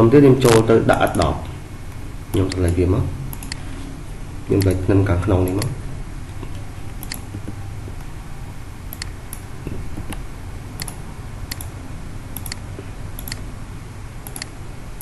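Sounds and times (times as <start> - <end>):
low steady hum: 0.0 - 15.0
computer mouse clicking: 0.5 - 1.3, 2.3 - 3.7, 5.4 - 5.7, 6.3 - 7.6, 10.8 - 11.8, 12.4 - 12.6, 13.2 - 13.4, 14.2 - 14.6.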